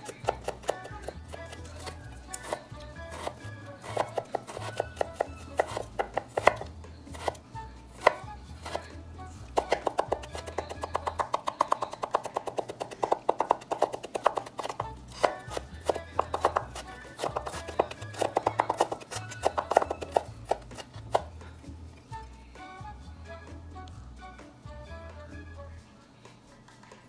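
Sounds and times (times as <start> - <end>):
knife chopping on wooden board: 0.0 - 21.4.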